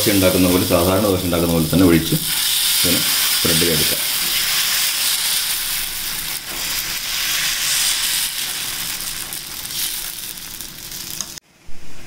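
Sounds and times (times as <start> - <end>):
batter sizzling in oil: 0.0 - 11.4.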